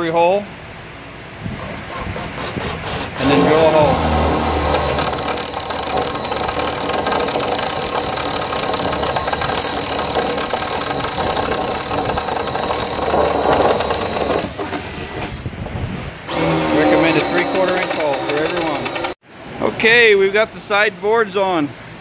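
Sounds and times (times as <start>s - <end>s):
cordless drill boring wood: 1.6s - 15.4s, 16.3s - 19.2s.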